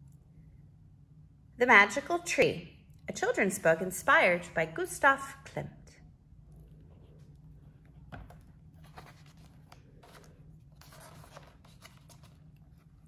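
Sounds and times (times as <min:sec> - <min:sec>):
book pages rustling: 0:07.0 - 0:13.0.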